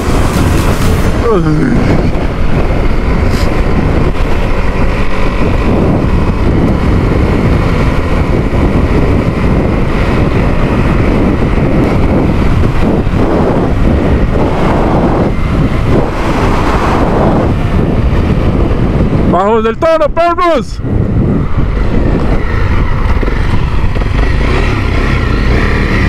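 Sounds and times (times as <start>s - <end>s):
motorcycle engine running: 0.0s - 19.6s, 20.8s - 26.0s
wind buffeting microphone: 0.0s - 26.0s.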